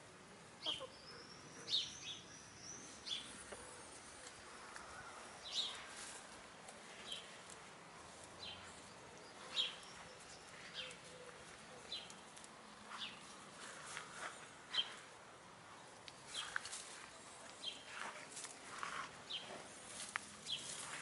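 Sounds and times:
hens foraging in grass: 0.0 - 21.0
bird chirping: 0.6 - 4.0, 8.4 - 12.3.

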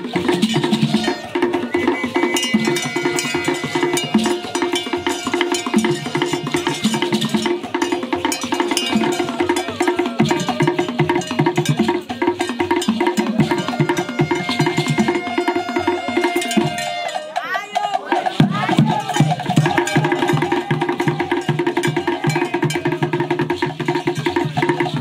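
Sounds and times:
drums in fast repeating pattern: 0.0 - 25.0.

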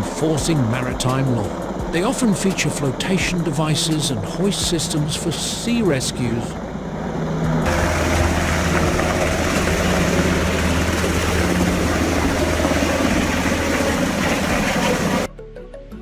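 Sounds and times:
helicopter rotor and turbine noise: 0.0 - 15.3
low hum: 0.0 - 15.3.

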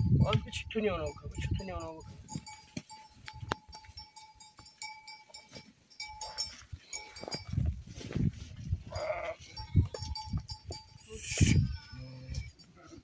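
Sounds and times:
livestock bells tinkling: 0.0 - 13.0
animal bleat: 8.9 - 9.6, 11.1 - 13.0.

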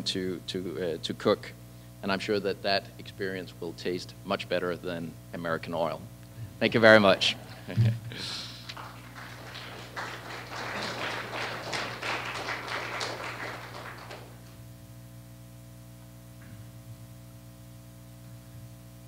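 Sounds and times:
steady electrical hum: 0.0 - 19.0
audience applauding: 6.7 - 14.6.

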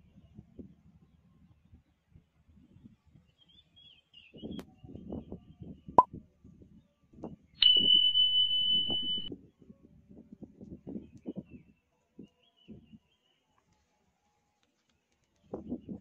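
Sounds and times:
bell ding: 7.6 - 9.3.

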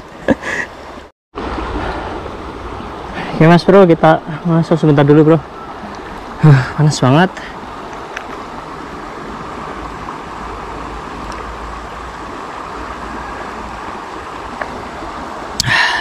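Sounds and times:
river rushing over rocks: 0.7 - 16.0.

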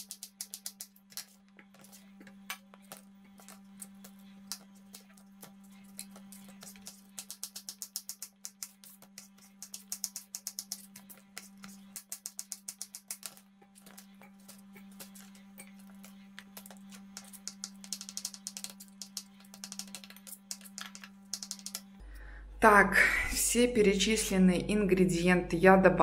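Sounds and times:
knife chopping on plastic board: 4.0 - 21.7.

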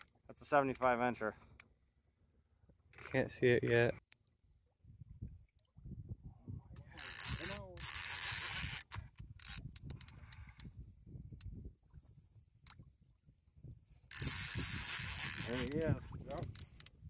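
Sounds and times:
fishing reel drag buzzing: 7.0 - 10.7, 14.0 - 17.0.

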